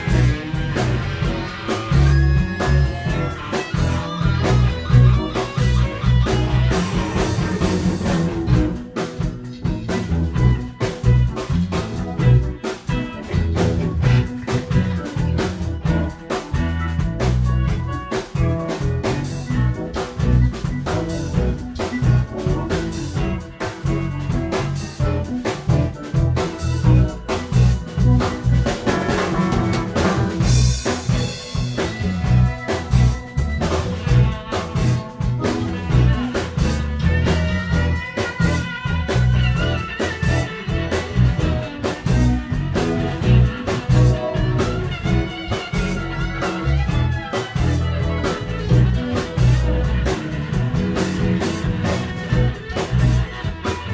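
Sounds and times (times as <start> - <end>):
blues-rock band playing: 0.0 - 53.9
wavering lead guitar line: 0.0 - 53.9.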